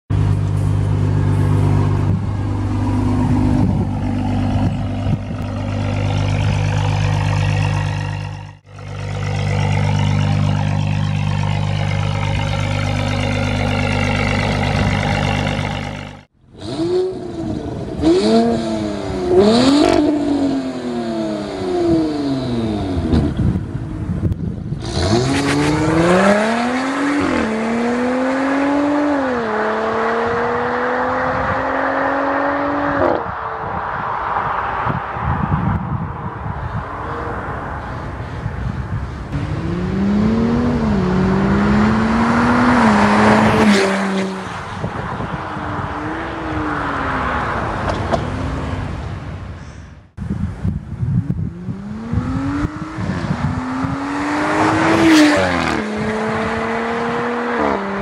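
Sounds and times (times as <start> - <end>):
car engine idling: 0.1 - 16.2
car engine revving: 0.1 - 23.4, 24.8 - 34.0, 39.3 - 49.0, 51.3 - 58.0
car accelerating hard: 24.8 - 33.8, 39.3 - 48.2, 51.3 - 58.0.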